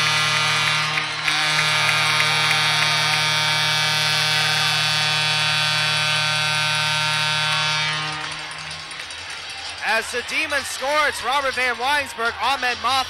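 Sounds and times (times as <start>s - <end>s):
goal horn blast: 0.0s - 8.6s.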